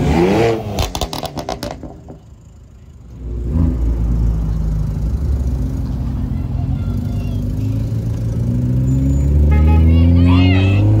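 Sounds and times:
engine revving: 0.0s - 2.0s, 7.4s - 11.0s
car engine rumbling: 0.0s - 11.0s
exhaust crackling pops: 0.8s - 2.3s.

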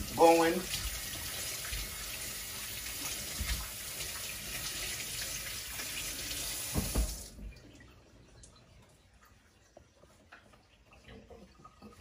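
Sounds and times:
tap water running into sink: 0.0s - 8.7s.

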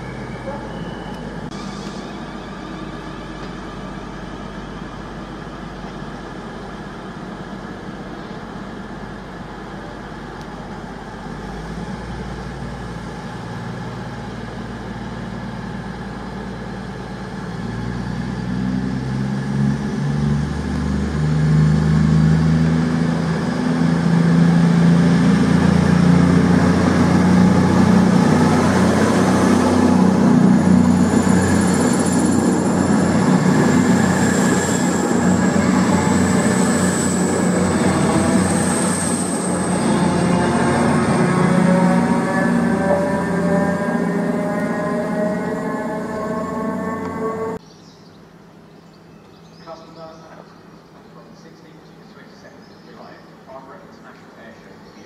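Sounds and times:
diesel train engines: 0.0s - 47.6s, 48.3s - 55.0s
faint rising whine: 17.4s - 47.6s.

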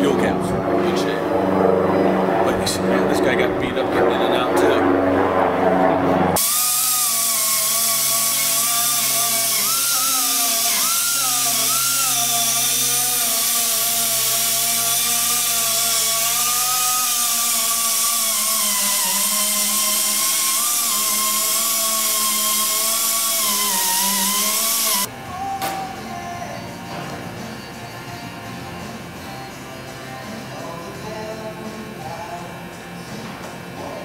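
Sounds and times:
air drill whining: 6.3s - 25.1s.

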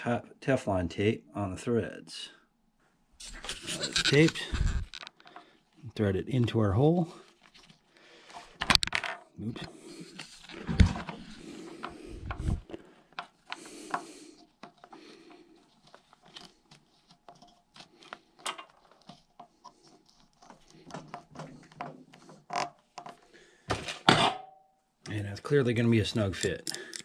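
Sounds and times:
plastic parts clicking and scraping: 3.2s - 5.5s, 7.3s - 24.1s, 26.2s - 27.0s.

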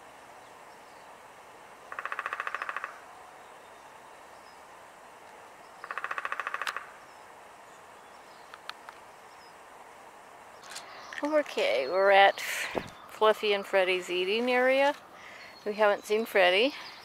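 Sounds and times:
woodpecker drumming on tree: 1.8s - 3.1s, 5.8s - 7.1s.

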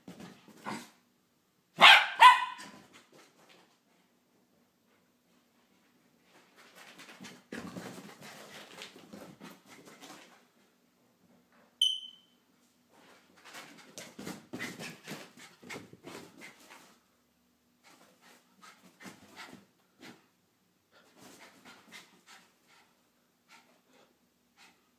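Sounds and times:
high-pitched squeak: 11.8s - 12.3s.

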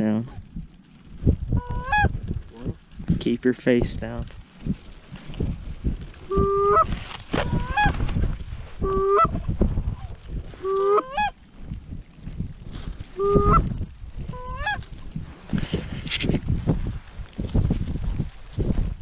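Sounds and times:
goose honks: 6.3s - 7.9s.

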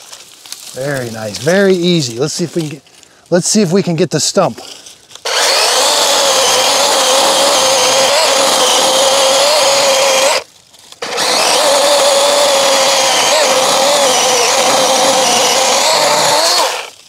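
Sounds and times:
electric chainsaw cutting wood: 5.2s - 17.0s.

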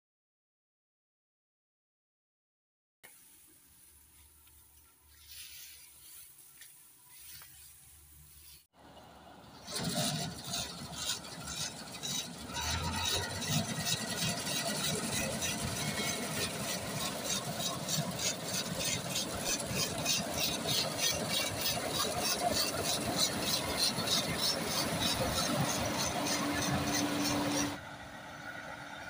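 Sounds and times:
combine harvester engine running: 8.8s - 29.0s
header and belt drives clattering: 9.5s - 27.8s.

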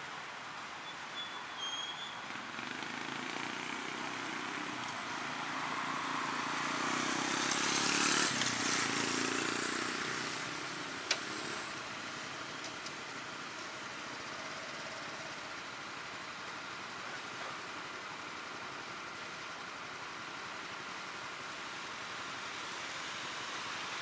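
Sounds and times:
motor vehicle passing by: 2.4s - 11.8s.

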